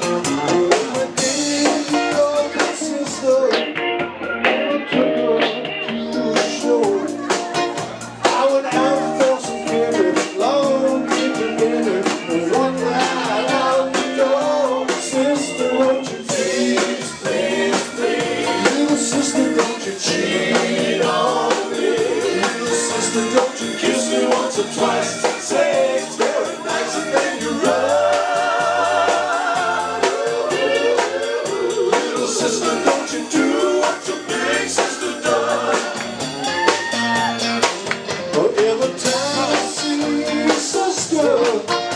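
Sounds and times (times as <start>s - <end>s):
person singing: 0.0s - 37.2s, 38.2s - 41.9s
drum kit: 0.0s - 41.9s
electric bass: 0.0s - 41.9s.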